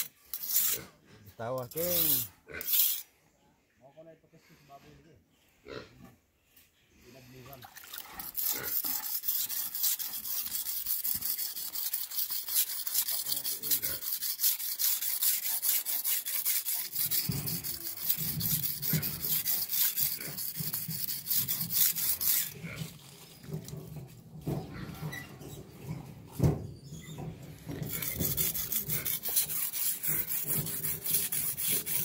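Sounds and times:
knife scraping on whetstone: 0.0s - 0.9s, 1.6s - 3.1s, 8.2s - 23.8s, 27.2s - 32.0s.

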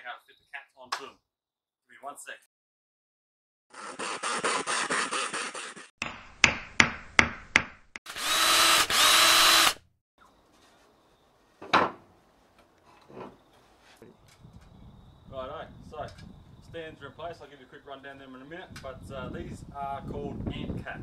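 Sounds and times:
power drill running: 8.1s - 9.8s
power tool chattering: 8.1s - 9.8s.

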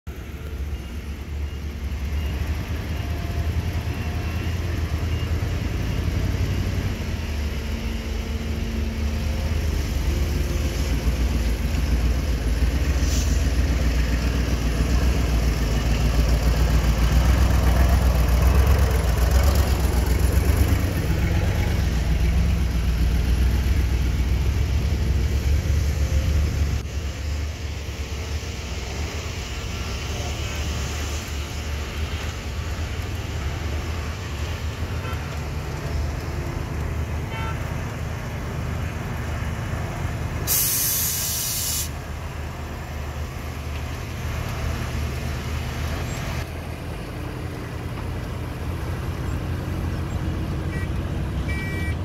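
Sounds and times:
dump truck diesel engines rumbling: 0.1s - 52.0s.

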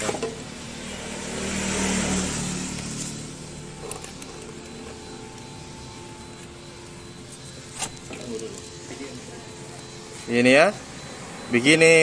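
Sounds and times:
vehicle passing by: 0.0s - 7.3s.

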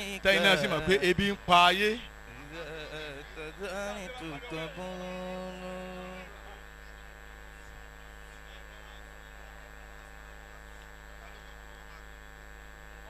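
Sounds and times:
man chanting a held note: 0.0s - 6.9s
electrical mains hum: 0.0s - 13.0s.

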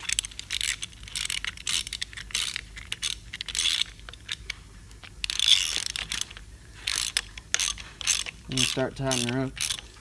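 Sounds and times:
ratchet wrench clicking: 0.0s - 4.4s, 5.2s - 9.9s.

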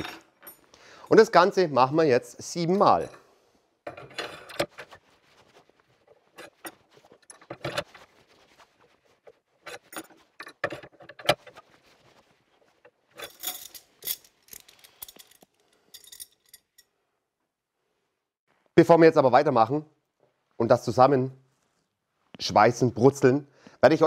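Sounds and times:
metal rods clinking and rattling: 3.9s - 5.0s, 6.3s - 8.0s, 9.6s - 11.6s, 13.1s - 16.9s.

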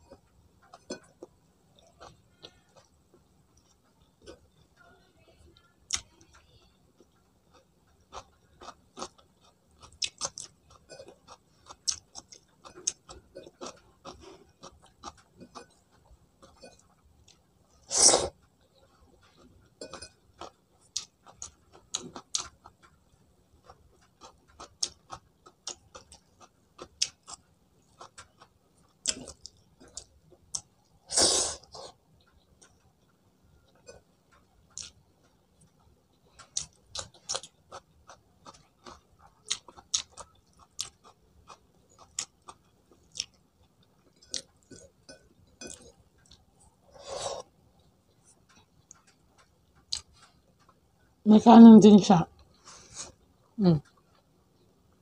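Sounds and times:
wet chewing and lip smacks: 31.6s - 46.8s, 47.4s - 50.8s.

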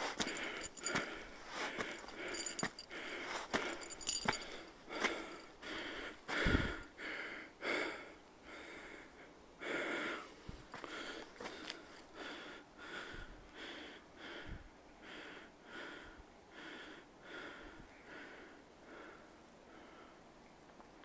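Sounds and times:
person panting heavily: 0.0s - 20.2s.

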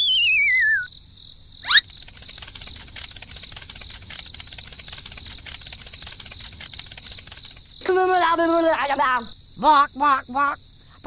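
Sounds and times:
descending wavering whistle: 0.0s - 0.9s
crickets chirping: 0.0s - 11.0s.

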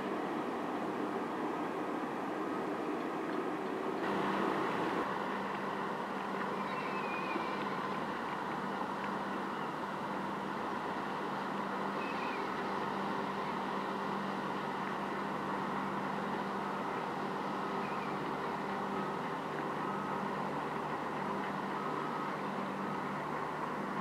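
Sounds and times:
ship engine drone: 0.0s - 24.0s.

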